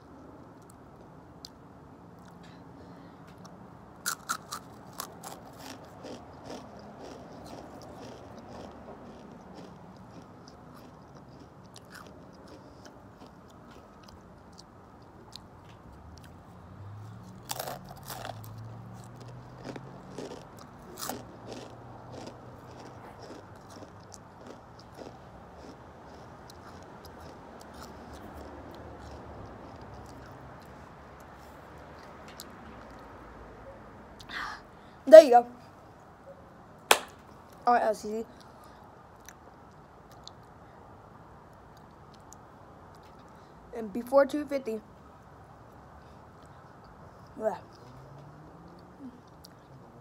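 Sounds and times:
chips being crunched and chewed: 4.0 - 14.7, 17.3 - 31.3.

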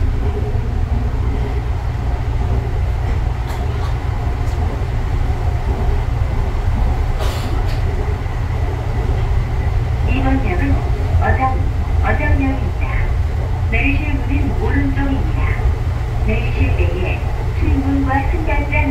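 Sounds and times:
train interior rumble: 0.0 - 18.9.

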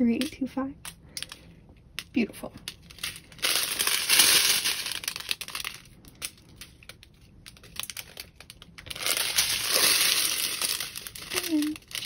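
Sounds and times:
plastic bags crinkling: 2.6 - 12.0.

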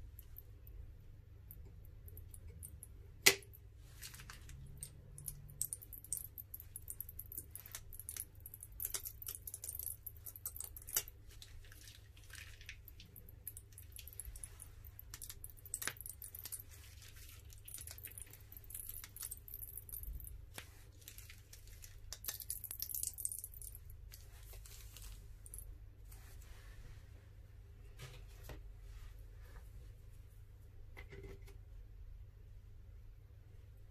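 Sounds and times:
small sticky clicks: 1.5 - 25.6
plastic piping bag crinkling: 3.8 - 4.9, 5.5 - 25.6.

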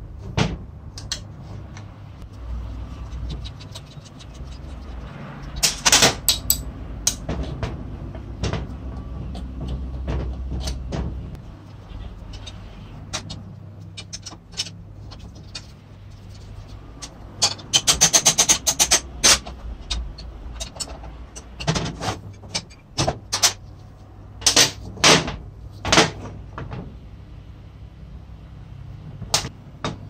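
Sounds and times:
steady low hum: 0.0 - 29.8.

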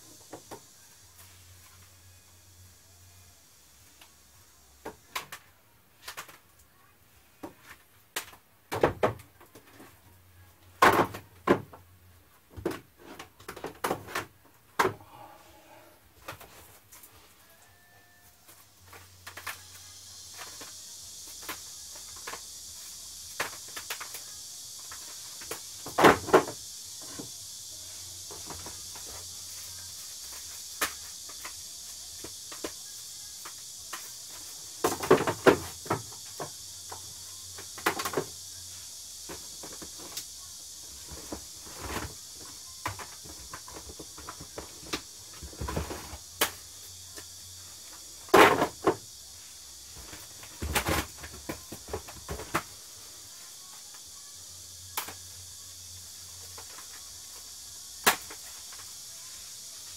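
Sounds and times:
steady high hiss: 0.0 - 59.9.

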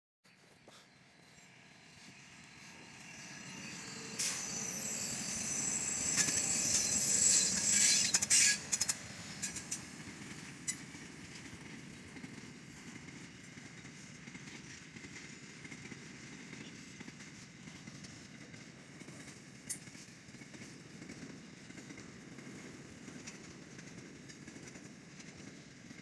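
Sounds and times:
freight train passing: 0.3 - 26.0
wheels clicking over rail joints: 0.3 - 26.0
high hiss: 1.4 - 10.7.

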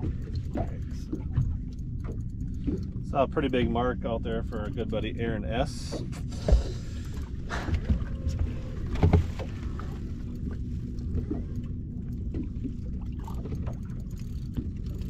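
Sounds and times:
faint hum: 0.0 - 15.0
water rumbling against hull: 0.0 - 15.0
thumps on boat: 5.9 - 6.9, 7.5 - 9.8.

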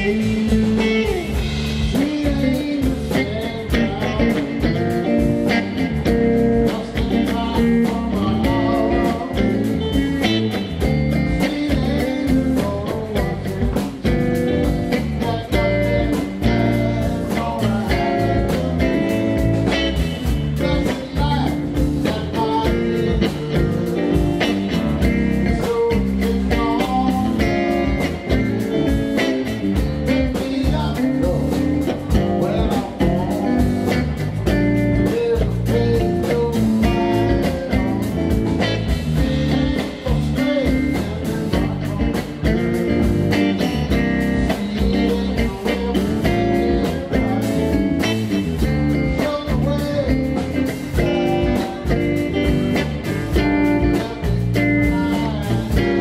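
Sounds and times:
drum kit beat: 0.0 - 56.0
electric guitar through an amp: 0.0 - 56.0.

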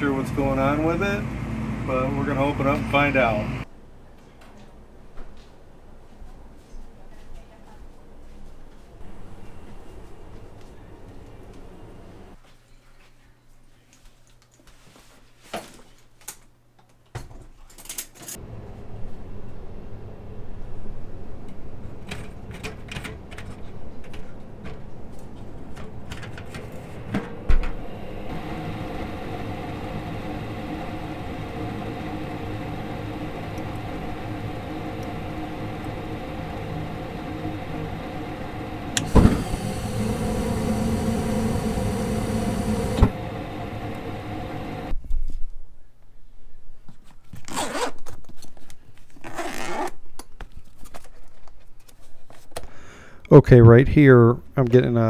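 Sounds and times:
furnace inducer motor humming: 0.0 - 3.7, 9.0 - 12.4, 25.2 - 44.9
gas burner rush: 0.0 - 3.7, 25.7 - 44.9
furnace ignition click: 27.1 - 44.9.

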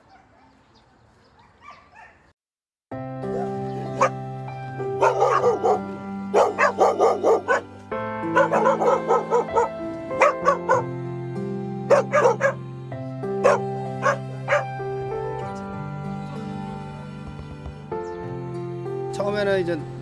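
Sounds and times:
dogs barking: 0.0 - 0.6, 1.4 - 2.3, 3.3 - 4.2, 4.9 - 11.0, 11.9 - 12.6, 13.4 - 15.6
background music: 3.0 - 20.0.

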